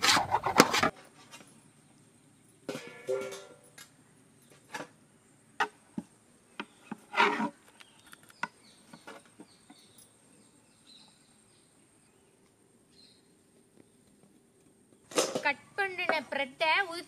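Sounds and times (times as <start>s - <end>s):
knife scrape: 0.0s - 1.0s, 7.0s - 7.6s
faint bird chirps: 7.8s - 14.1s.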